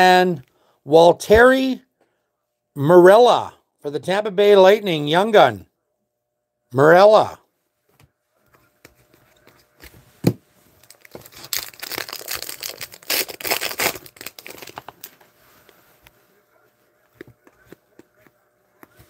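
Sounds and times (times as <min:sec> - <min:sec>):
wrapper tearing and crinkling: 0:10.8 - 0:15.1.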